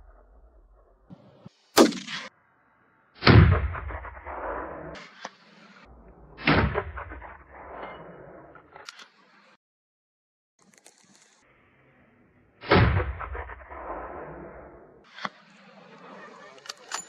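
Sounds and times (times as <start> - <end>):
gunshots with echo: 1.1 - 2.3, 3.2 - 5.2.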